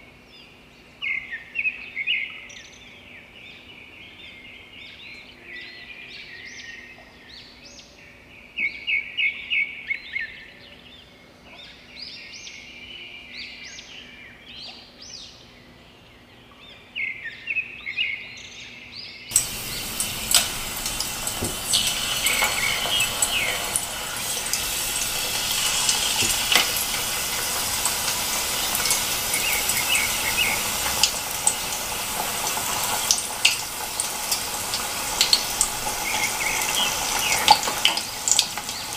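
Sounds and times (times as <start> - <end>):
birds chirping: 19.3 - 38.9
hot oil sizzling and crackling: 19.3 - 38.9.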